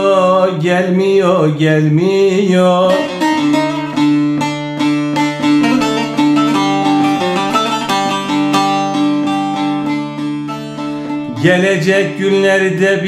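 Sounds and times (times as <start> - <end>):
long-necked lute melody over drone: 2.6 - 12.3.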